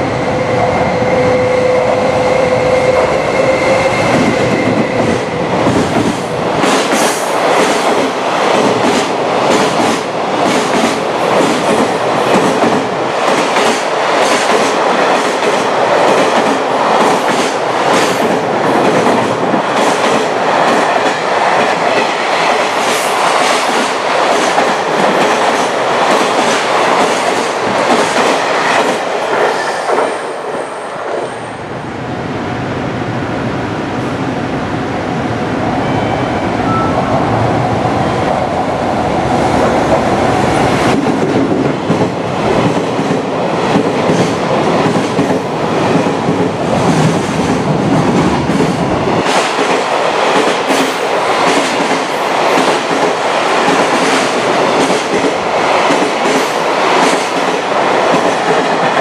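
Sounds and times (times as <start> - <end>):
train wheels rushing on rail: 0.0 - 59.0
held tone: 35.7 - 37.7.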